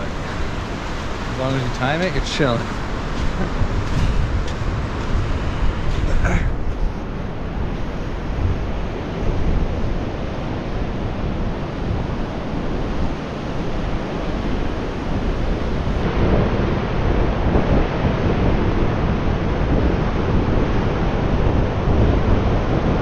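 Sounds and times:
ocean surf on beach: 0.0 - 23.0
wind buffeting microphone: 0.0 - 23.0.

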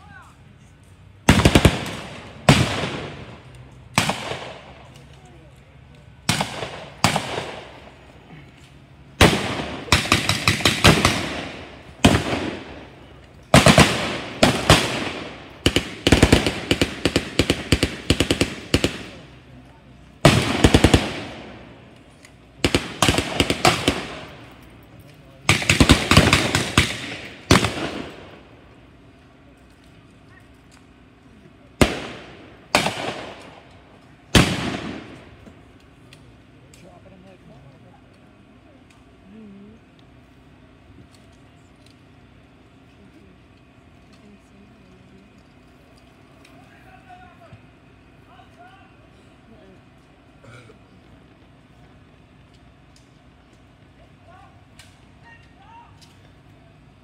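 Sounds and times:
blank gunshots with echo: 1.2 - 5.0, 6.2 - 8.0, 9.2 - 19.5, 20.2 - 21.8, 22.6 - 24.5, 25.4 - 28.5, 31.8 - 33.7, 34.3 - 35.4
gunshots with echo: 6.3 - 7.9, 9.2 - 13.0, 13.6 - 19.3.

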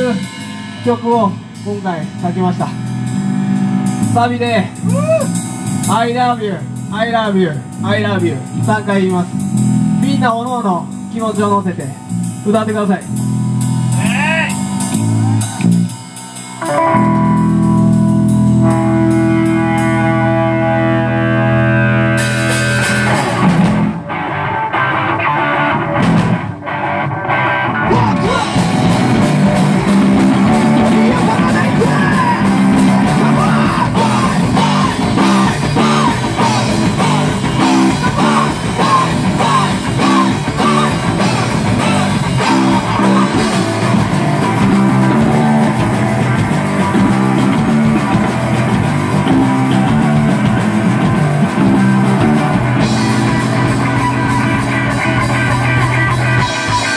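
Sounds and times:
electric guitar playing alone: 0.0 - 56.9
live rock band playing: 0.0 - 56.9.

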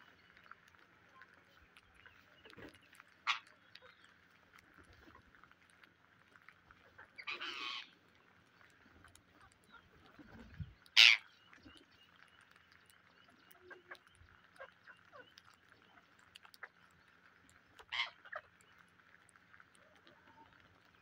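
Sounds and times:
beaks pecking grain: 0.0 - 21.0
parakeet screeching: 7.2 - 7.9, 11.0 - 11.2.

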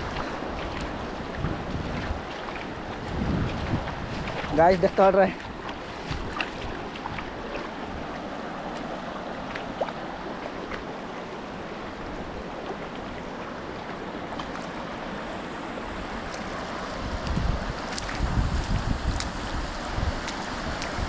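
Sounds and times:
river rushing over stones: 0.0 - 21.0.

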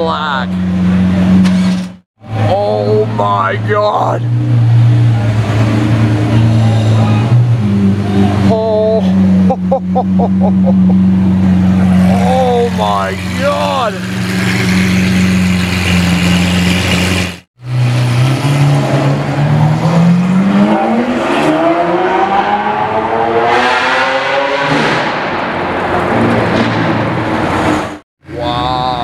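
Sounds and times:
car engine idling and revving: 0.0 - 29.0.

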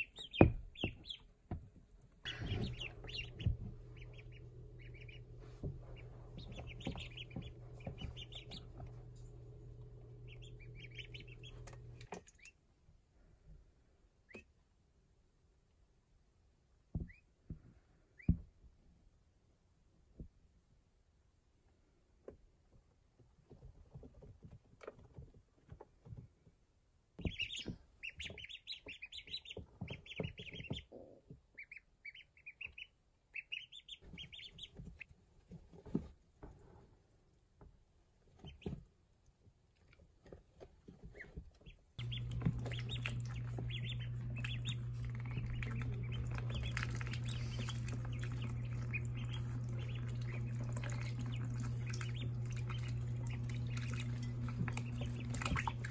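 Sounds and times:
ducklings peeping: 0.0 - 12.7, 14.1 - 14.6, 16.9 - 17.4, 18.0 - 18.6, 27.1 - 36.0, 38.3 - 39.0, 40.8 - 55.9
soft knocks of ducklings moving: 0.0 - 14.6, 16.8 - 19.0, 21.7 - 55.9
steady low hum: 2.2 - 12.4, 42.0 - 55.9.

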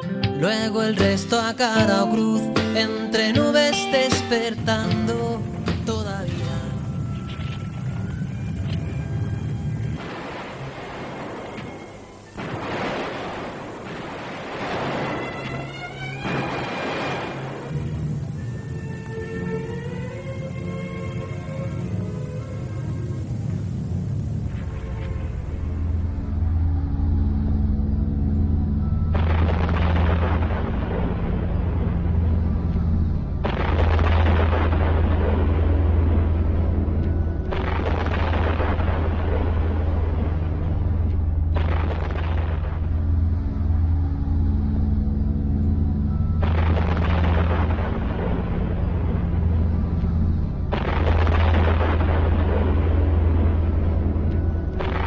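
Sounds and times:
dark drone music: 0.0 - 55.0
explosion-like blast: 12.4 - 15.4, 16.2 - 17.7, 29.0 - 45.1, 45.7 - 55.0.

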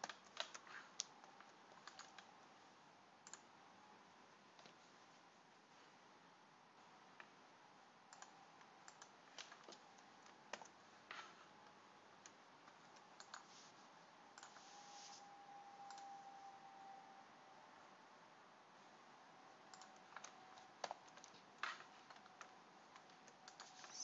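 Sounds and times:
keyboard and mouse clicks: 0.0 - 2.4, 3.2 - 3.5, 4.6 - 4.8, 8.1 - 13.5, 14.3 - 14.6, 15.9 - 16.1, 19.7 - 24.0.

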